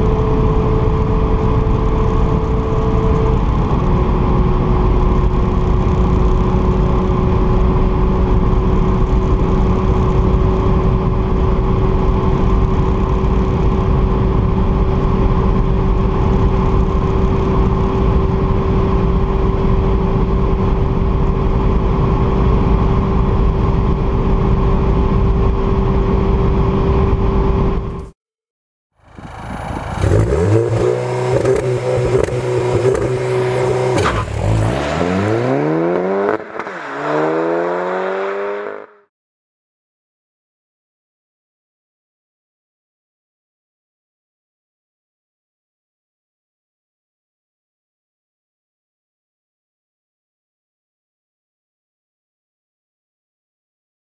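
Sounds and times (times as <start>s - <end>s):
car engine drone in cabin: 0.0s - 28.1s, 29.0s - 38.9s
road and wind noise: 0.0s - 28.2s, 29.0s - 39.1s
car exhaust: 29.0s - 38.9s.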